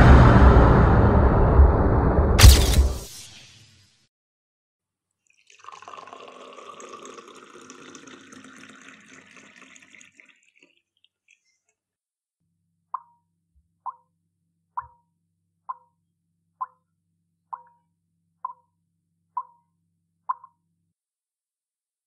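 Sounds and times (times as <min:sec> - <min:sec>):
water pouring into a vessel: 0:05.2 - 0:11.6.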